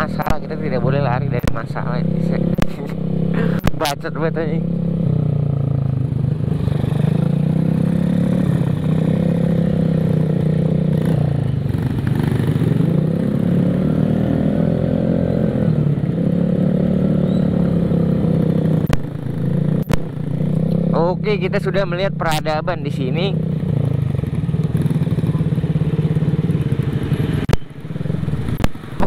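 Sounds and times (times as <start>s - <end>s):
road noise: 0.0s - 29.0s
scooter engine running: 0.0s - 29.0s
sharp clicks: 18.8s - 20.8s.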